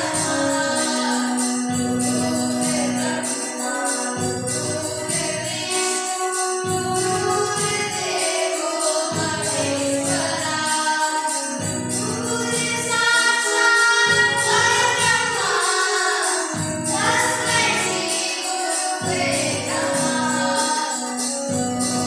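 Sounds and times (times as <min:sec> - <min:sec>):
children singing: 0:00.0 - 0:22.0
electronic keyboard chords: 0:00.0 - 0:22.0
high percussion beat: 0:11.4 - 0:22.0.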